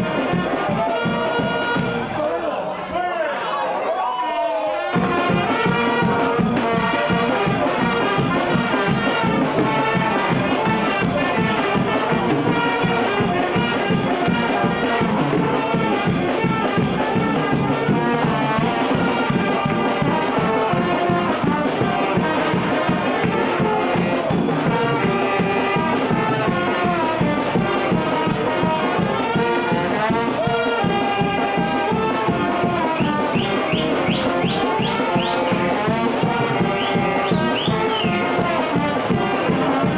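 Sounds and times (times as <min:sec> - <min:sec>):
brass band playing: 0:00.0 - 0:02.5, 0:04.7 - 0:39.9.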